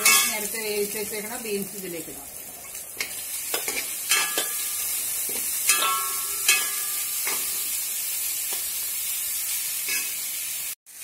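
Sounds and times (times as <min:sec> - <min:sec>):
food sizzling in oil: 0:00.0 - 0:11.0
metal spoon scraping and knocking pan: 0:03.0 - 0:07.7.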